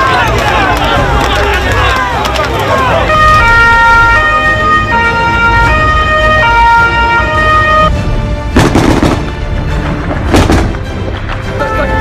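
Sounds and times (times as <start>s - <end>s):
two-tone emergency siren: 2.7s - 7.9s.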